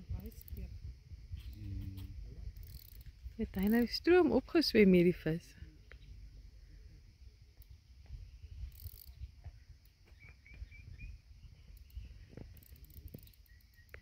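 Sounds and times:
insects hissing: 0:00.0 - 0:14.0
bird chirping: 0:01.3 - 0:02.1, 0:07.6 - 0:14.0.

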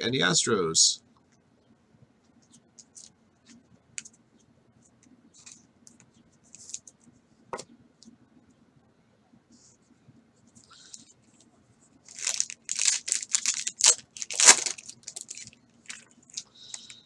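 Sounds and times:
plastic sleeve rustling: 0:10.9 - 0:17.0.

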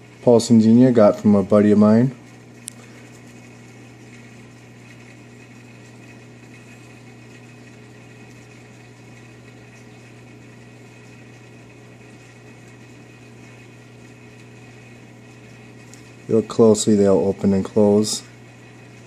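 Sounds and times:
aquarium pumps humming: 0:00.0 - 0:19.0.

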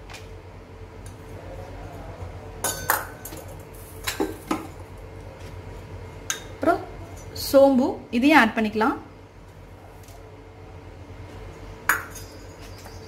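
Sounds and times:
metal bowl clinking: 0:11.9 - 0:12.9.

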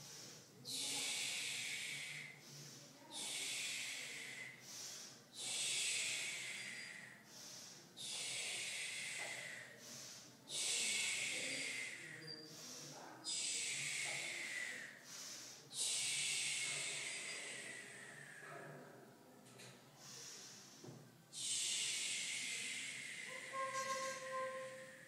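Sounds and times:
person breathing forcefully: 0:00.0 - 0:18.4.

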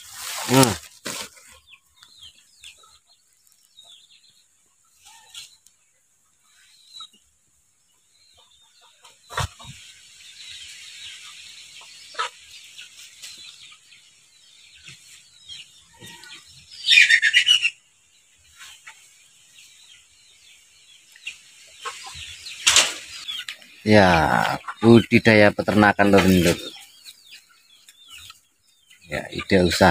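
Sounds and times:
chickens clucking: 0:00.0 - 0:29.9
chicken squawk: 0:15.8 - 0:17.8.

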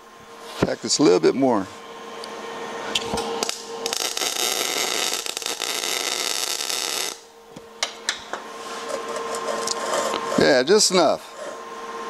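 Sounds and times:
steady hum: 0:00.0 - 0:12.0
welding arc crackling: 0:02.9 - 0:07.3.

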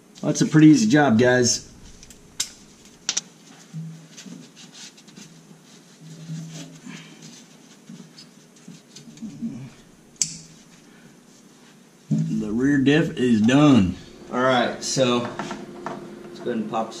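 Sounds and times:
rubbing and handling noises: 0:01.3 - 0:16.8
sharp metallic clicks: 0:01.6 - 0:03.2, 0:10.2 - 0:10.5.

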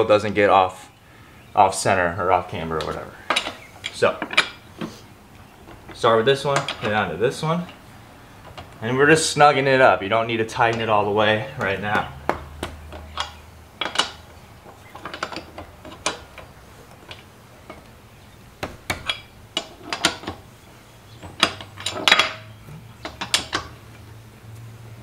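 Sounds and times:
tire iron clinking on lug nuts: 0:02.2 - 0:25.0
sharp metallic clicks: 0:11.6 - 0:18.0.

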